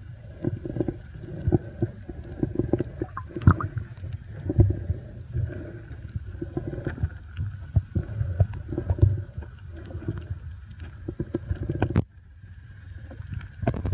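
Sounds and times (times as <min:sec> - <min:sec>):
underwater rumble of moving water: 0:00.0 - 0:13.9.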